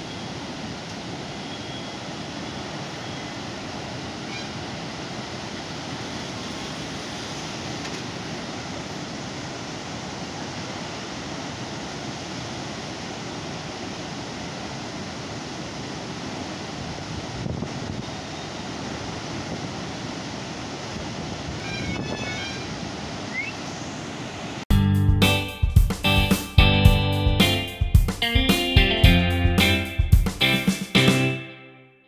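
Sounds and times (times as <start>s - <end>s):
rushing falling water: 0.0s - 24.6s.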